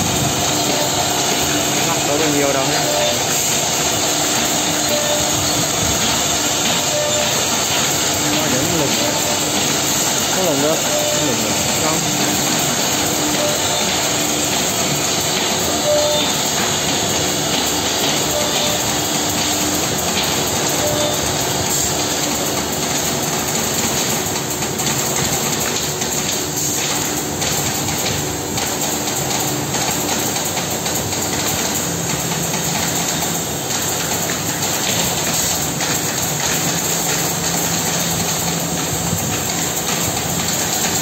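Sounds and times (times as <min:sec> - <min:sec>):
cnc router cutting wood: 0:00.0 - 0:22.6.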